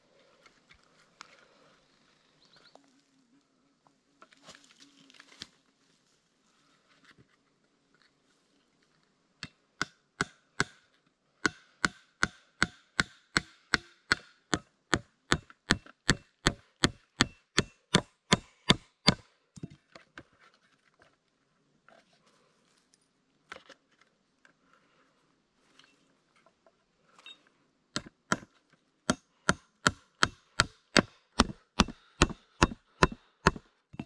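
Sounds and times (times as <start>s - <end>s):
hatchet hammering nails into wood: 9.8s - 10.8s, 11.4s - 19.3s, 29.1s - 34.0s.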